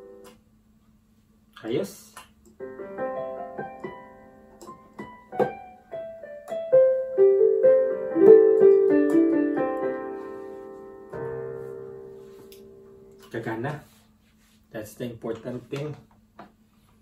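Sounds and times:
piano notes on keyboard: 0:00.0 - 0:00.4, 0:02.6 - 0:13.8.

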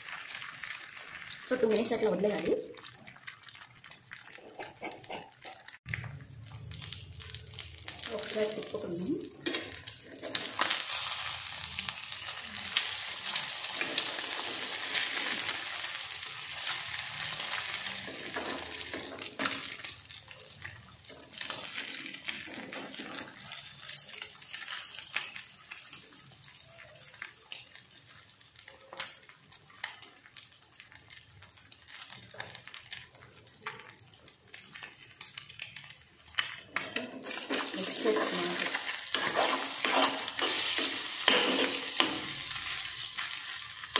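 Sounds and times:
eggs sizzling in hot oil: 0:00.0 - 0:43.9
steel spoon scraping a pan: 0:36.8 - 0:42.9.

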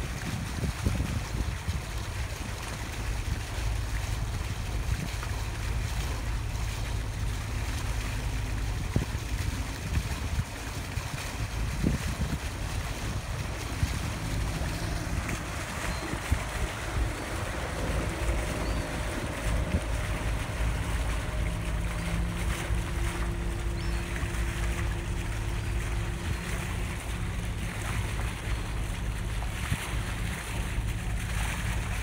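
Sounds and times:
steady low rumble: 0:00.0 - 0:32.0
water rushing along hull: 0:00.0 - 0:32.0
wind buffeting microphone: 0:00.0 - 0:32.0.

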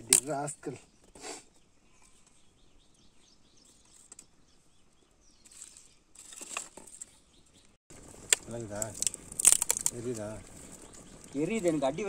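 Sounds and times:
small birds chirping: 0:00.0 - 0:12.0
rustling crackling noises: 0:05.4 - 0:12.0.

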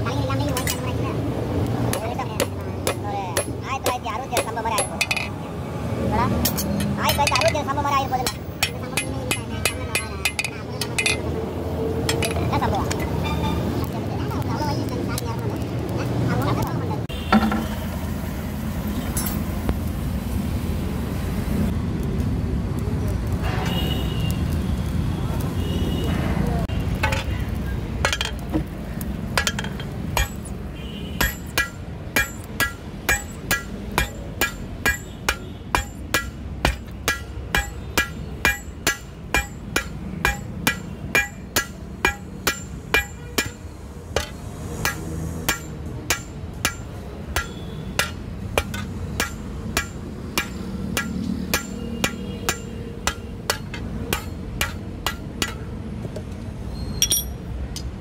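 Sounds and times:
hammer ringing on anvil: 0:29.4 - 0:30.5, 0:31.2 - 0:43.6, 0:44.2 - 0:55.7.

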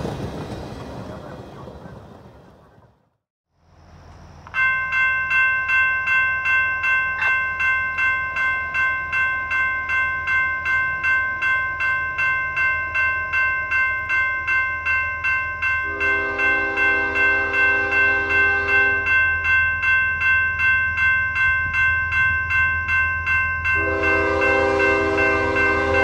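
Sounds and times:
railroad crossing bell ringing: 0:03.8 - 0:26.0.

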